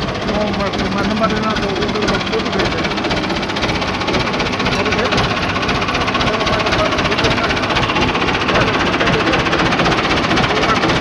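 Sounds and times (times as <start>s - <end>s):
tractor engine idling: 0.0s - 11.0s.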